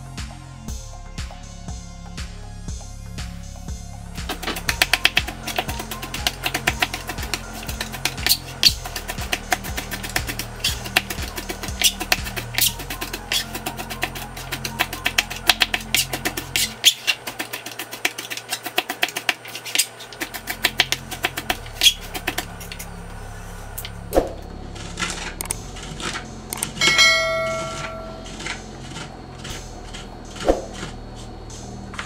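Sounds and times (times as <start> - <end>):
knife chopping on plastic board: 4.3 - 22.6
bell-like ding: 26.8 - 28.3.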